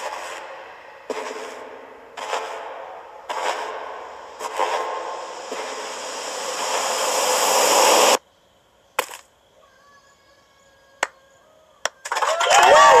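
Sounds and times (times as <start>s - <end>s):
loud rushing noise: 0.0s - 8.2s.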